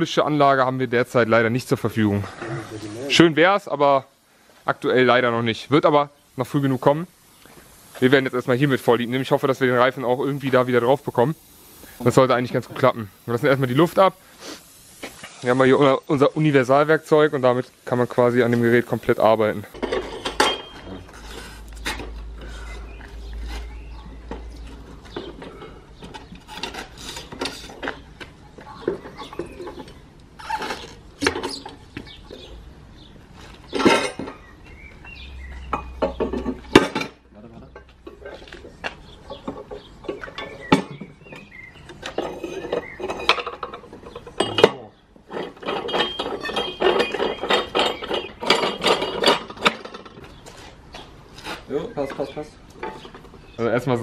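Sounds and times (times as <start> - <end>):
metal rattling and scraping: 18.1 - 28.0, 28.7 - 31.8, 33.5 - 34.5, 39.3 - 50.4.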